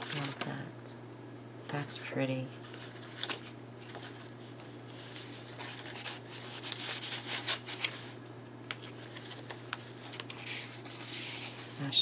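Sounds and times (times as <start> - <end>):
paper crackles: 0.0 - 0.6, 2.5 - 12.0
paper rustling and sliding: 2.6 - 12.0.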